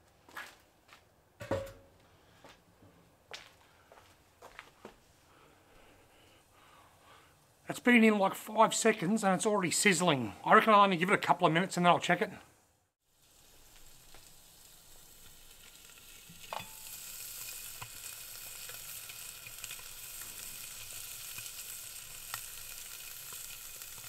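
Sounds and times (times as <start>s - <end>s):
fish sizzling in hot oven: 13.0s - 24.0s
sharp pops and crackles: 13.2s - 24.0s.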